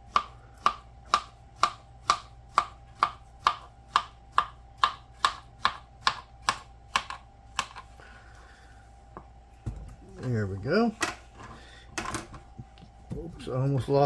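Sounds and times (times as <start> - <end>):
blade tapping plastic cutting board: 0.1 - 7.8.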